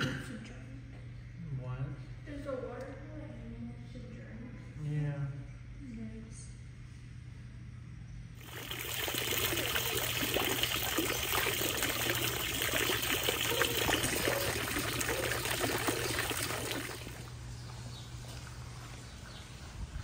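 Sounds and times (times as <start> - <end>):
fountain water splashing into pool: 8.4 - 17.4.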